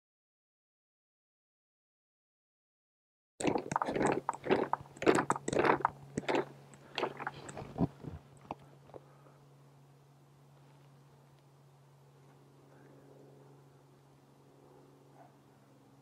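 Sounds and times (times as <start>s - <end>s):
faint steady hum: 3.4s - 16.0s.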